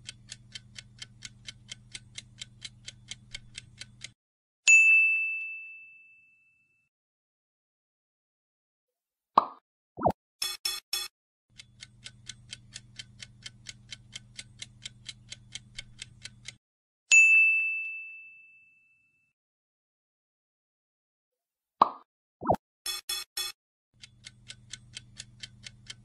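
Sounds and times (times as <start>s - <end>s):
bright ding: 4.7s - 6.8s, 17.2s - 19.3s
countdown timer ticking: 22.4s - 26.0s.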